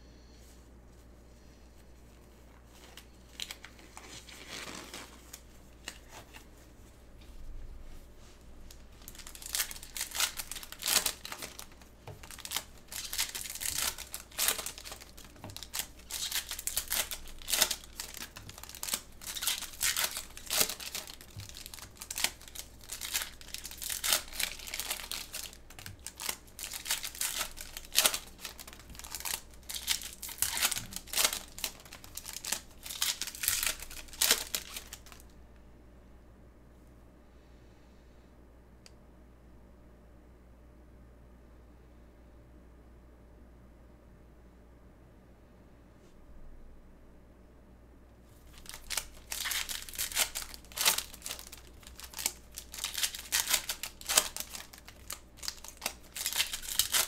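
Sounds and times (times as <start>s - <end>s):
plastic wrapping tearing and crinkling: 2.6s - 6.5s, 8.6s - 35.3s, 48.4s - 57.0s.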